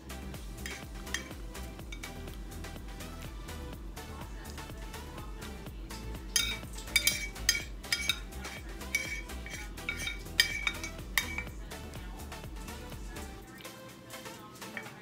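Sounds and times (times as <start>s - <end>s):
metal spoon clinking on dish: 0.6s - 2.2s, 6.0s - 11.6s, 14.7s - 15.0s.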